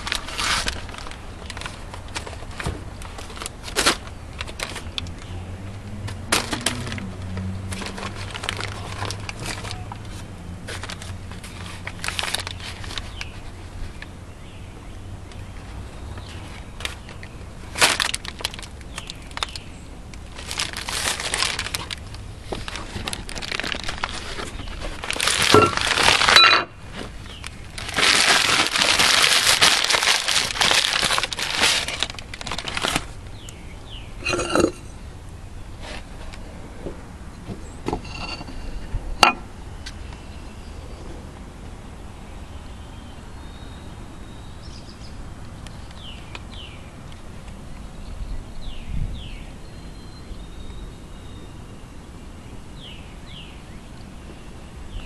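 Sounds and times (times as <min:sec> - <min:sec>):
paper bag rustling and crumpling: 0:00.0 - 0:05.0, 0:06.3 - 0:14.0, 0:16.4 - 0:19.6, 0:20.2 - 0:33.4.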